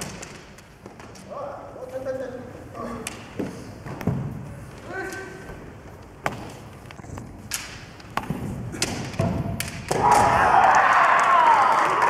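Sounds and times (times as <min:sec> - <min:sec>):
bamboo swords striking: 0:07.5 - 0:10.5
group shouting: 0:09.9 - 0:12.0
applause: 0:11.1 - 0:12.0.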